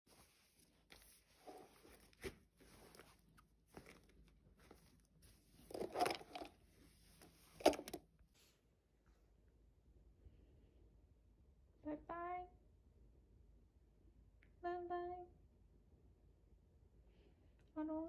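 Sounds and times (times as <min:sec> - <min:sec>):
soft rustles in backpack: 0:00.1 - 0:08.7.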